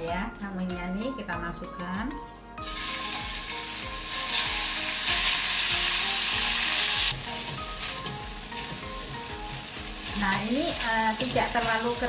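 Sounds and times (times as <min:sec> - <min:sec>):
meat sizzling in a wok: 0:02.6 - 0:12.0.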